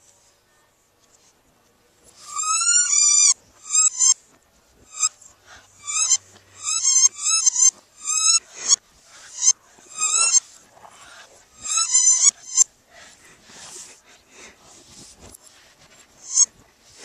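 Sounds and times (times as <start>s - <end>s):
squeaky dog toy squeaking: 2.2s - 4.2s, 4.9s - 10.5s, 11.6s - 12.7s.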